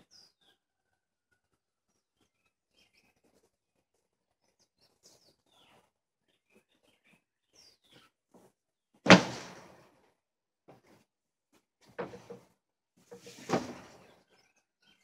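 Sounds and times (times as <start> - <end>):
faint bird chirps: 13.9 - 15.0.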